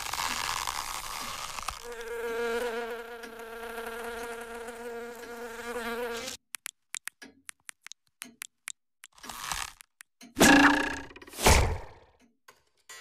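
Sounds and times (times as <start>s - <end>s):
cartoon fly buzzing: 1.8s - 11.2s
tiny sharp clicks: 6.4s - 11.1s.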